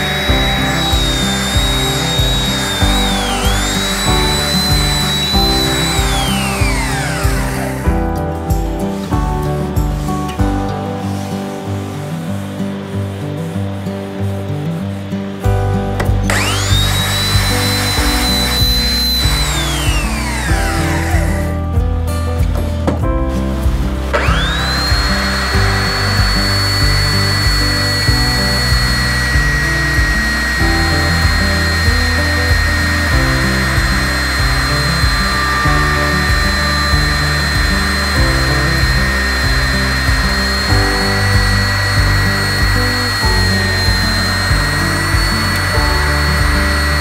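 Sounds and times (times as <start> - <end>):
belt sander whining: 0.0 - 8.0, 16.2 - 21.6, 24.1 - 47.0
background music with beat: 0.0 - 47.0.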